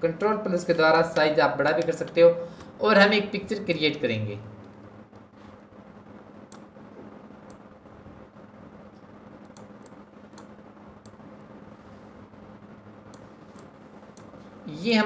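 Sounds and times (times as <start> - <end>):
low hum: 0.0 - 14.9
computer mouse clicks: 6.5 - 6.7, 7.4 - 7.6, 9.0 - 11.2, 13.1 - 14.4.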